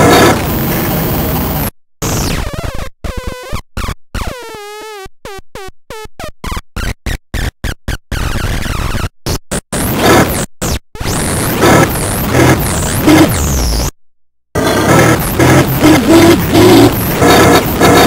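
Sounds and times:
noise synth: 0.0s - 2.8s, 9.7s - 14.0s, 14.6s - 18.0s.

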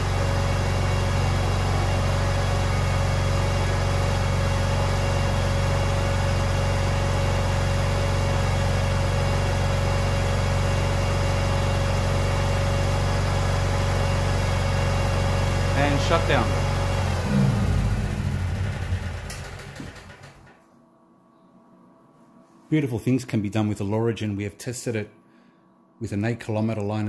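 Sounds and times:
generator engine humming: 0.0s - 20.6s.

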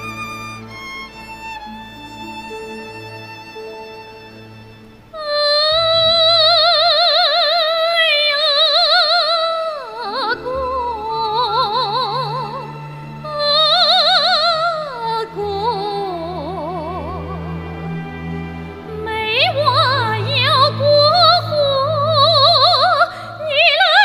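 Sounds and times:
soft sustained orchestral strings: 0.0s - 24.0s
woman singing with vibrato: 5.2s - 17.4s, 18.9s - 24.0s.

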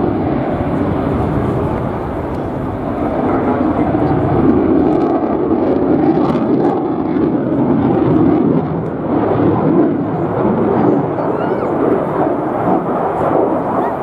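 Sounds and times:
fighter jet roaring past: 0.0s - 14.0s.

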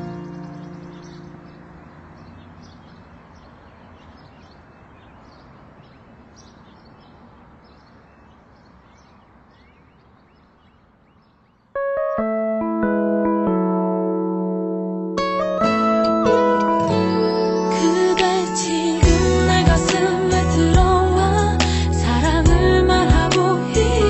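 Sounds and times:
guitar chord: 0.0s - 1.9s, 11.8s - 24.0s
electric piano music: 0.0s - 2.8s, 11.7s - 24.0s
small birds chirping: 0.0s - 11.8s.

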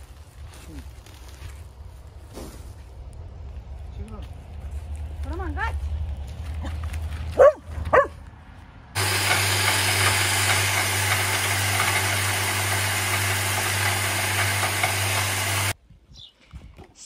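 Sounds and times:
small dog barking: 7.4s - 8.2s
electric feed mill motor hum: 9.0s - 15.8s.

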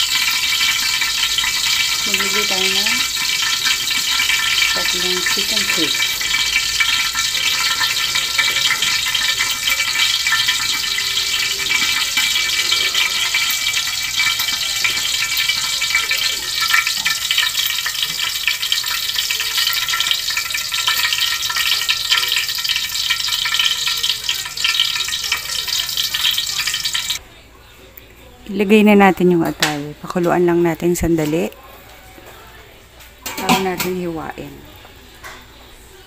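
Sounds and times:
broth boiling and bubbling: 0.0s - 27.2s.

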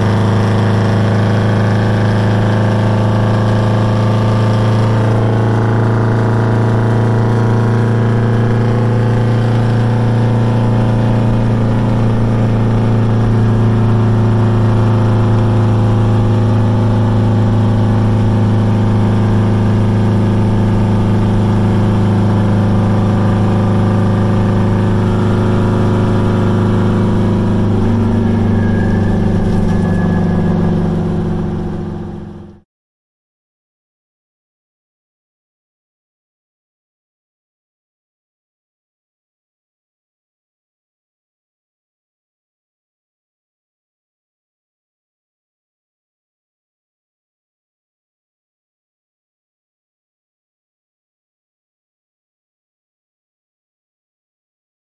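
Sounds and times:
truck diesel engine running: 0.0s - 32.6s.

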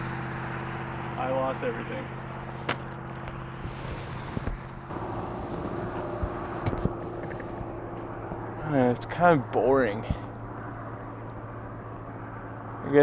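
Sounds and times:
model plane motor drone: 0.0s - 9.0s
wind: 0.0s - 13.0s.

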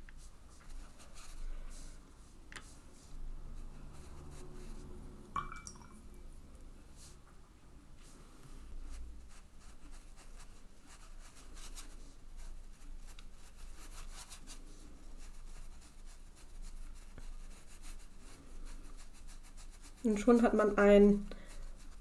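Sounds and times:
brush scrubbing on paper: 0.0s - 5.2s, 8.0s - 22.0s
faint low room hum: 0.0s - 22.0s.

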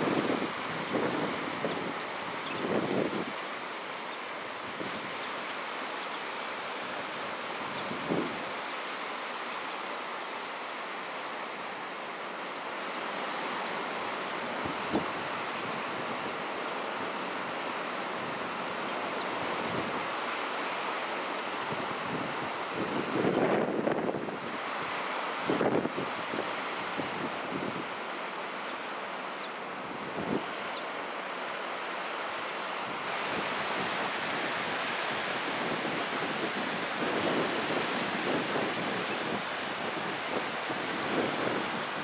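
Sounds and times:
wind on microphone: 0.0s - 3.4s, 7.6s - 8.6s, 14.6s - 16.4s, 21.7s - 27.9s, 32.8s - 42.0s
waves breaking on sandy beach: 0.0s - 42.0s.

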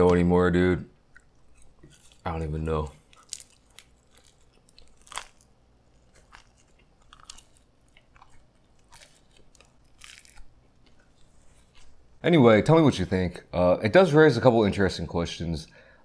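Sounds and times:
chewing: 1.0s - 12.1s
crunching pizza crust: 1.2s - 12.2s.

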